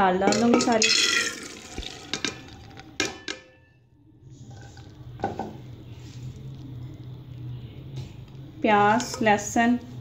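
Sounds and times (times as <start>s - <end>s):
low steady hum: 0.0s - 10.0s
lentils tipped into steel pot: 0.3s - 3.4s.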